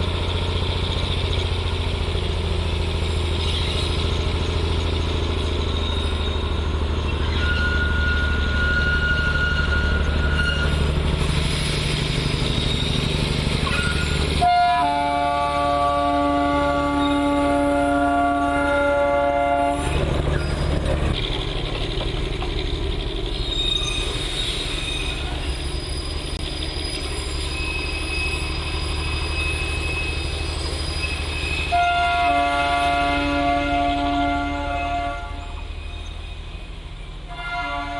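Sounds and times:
train rumbling on track: 0.0s - 37.9s
thin high wheel squeal: 3.0s - 14.4s, 19.8s - 21.0s, 23.2s - 33.4s, 35.3s - 36.8s
train horn: 14.4s - 20.0s, 31.7s - 35.7s, 37.3s - 37.9s.

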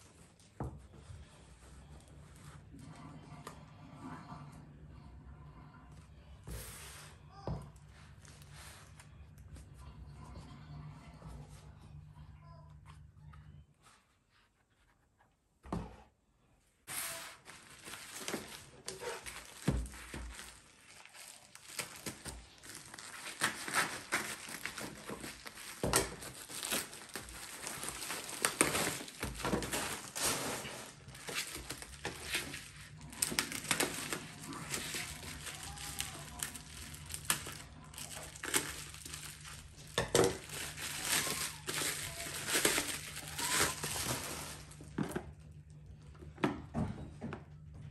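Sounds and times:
plastic packaging crinkling: 17.2s - 45.1s.

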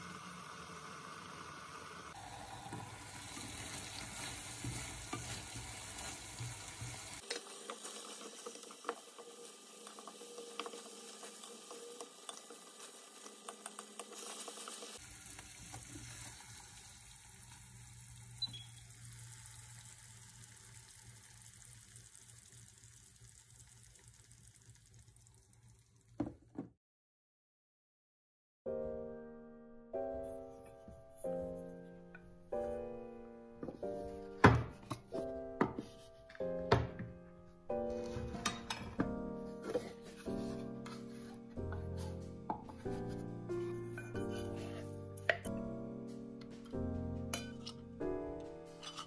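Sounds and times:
food sizzling in a frying pan: 0.0s - 26.2s, 47.3s - 47.8s.

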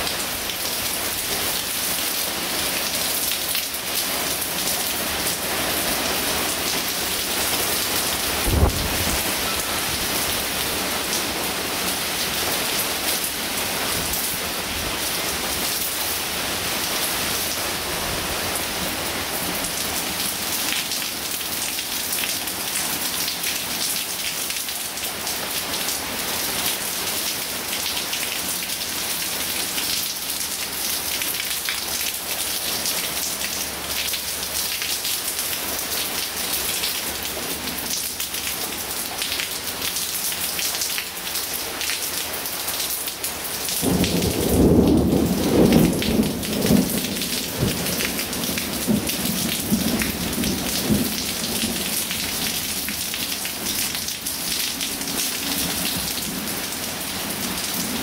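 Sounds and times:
heavy rain hissing: 0.0s - 22.0s
thunder rumbling: 8.4s - 10.2s.

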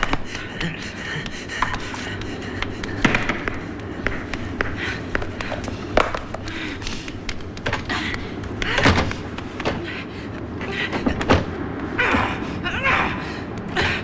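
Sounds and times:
footsteps on stone floor: 0.0s - 9.9s.

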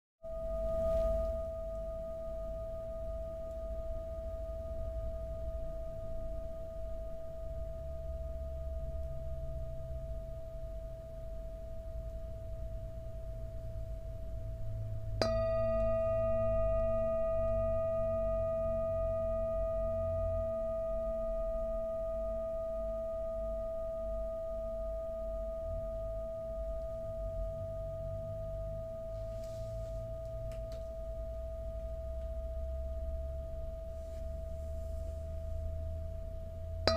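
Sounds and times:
low hum: 0.2s - 36.9s
singing bowl ringing: 0.2s - 36.9s
mallet striking singing bowl: 15.1s - 23.0s.

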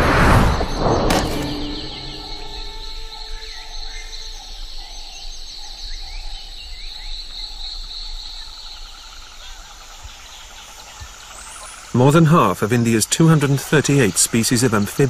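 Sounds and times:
high insect drone: 0.0s - 15.0s
bird chirps and trills: 0.6s - 7.1s.

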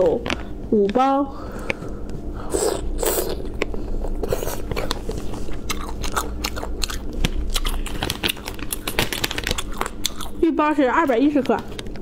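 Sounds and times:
person chewing: 1.6s - 10.4s.

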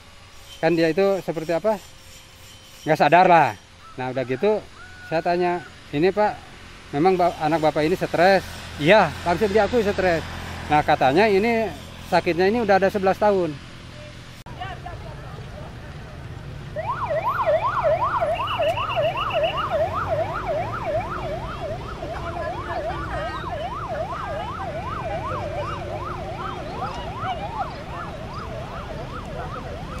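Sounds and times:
emergency siren yelping: 16.7s - 30.0s.

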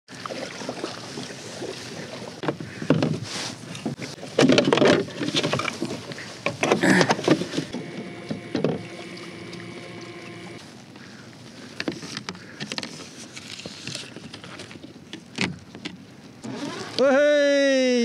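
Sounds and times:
paddle splashing in water: 0.1s - 10.8s
water washing: 7.0s - 10.6s
paddle knocking against kayak: 8.3s - 9.7s.

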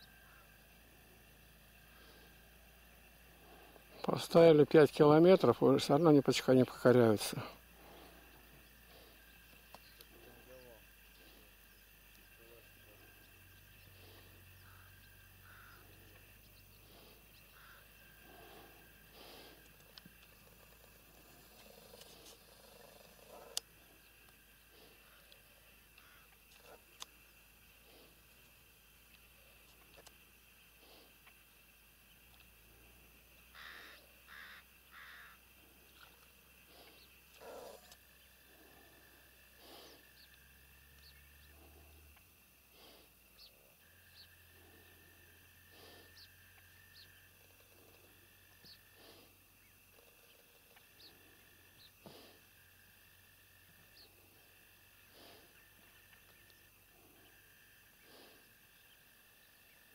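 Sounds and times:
steady low hum: 0.0s - 59.9s
faint short calls: 12.4s - 20.8s, 33.5s - 38.0s.

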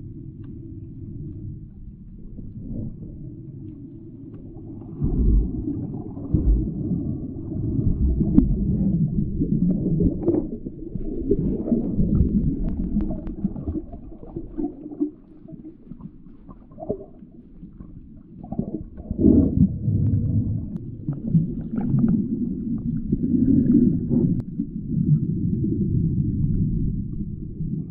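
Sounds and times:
underwater water rumble: 0.0s - 27.9s
underwater clicks and taps: 12.1s - 14.6s.

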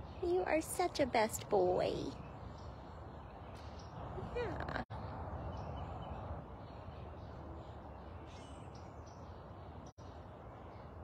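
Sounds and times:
distant bird calls: 0.0s - 11.0s
outdoor background rumble: 0.0s - 11.0s.

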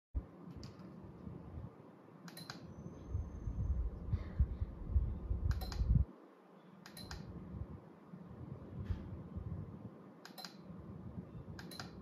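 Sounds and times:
sharp double clicks of switch: 2.2s - 2.7s, 5.5s - 6.0s, 6.8s - 7.3s, 10.2s - 10.7s, 11.6s - 12.0s
low rumble: 3.0s - 6.0s.

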